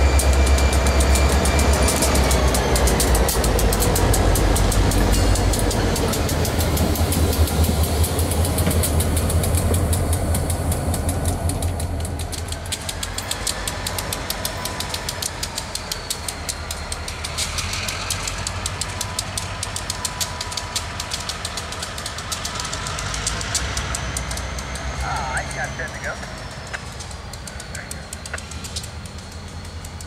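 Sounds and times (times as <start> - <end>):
crossing bell ringing: 0.0 - 9.3
diesel locomotive rumbling past: 0.0 - 30.0
distant diesel locomotive approaching: 0.0 - 30.0.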